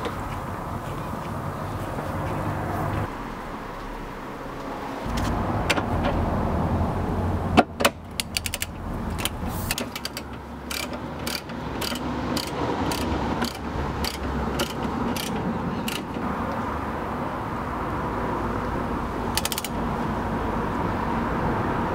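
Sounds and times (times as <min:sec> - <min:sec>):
ratchet wrench clicking: 0:07.8 - 0:16.2, 0:19.3 - 0:19.8.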